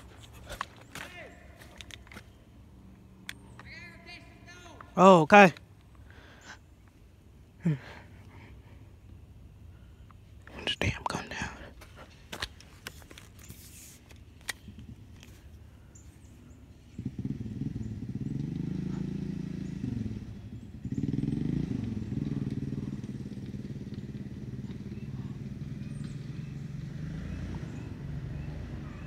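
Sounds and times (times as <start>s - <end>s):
engine running: 11.8s - 29.0s.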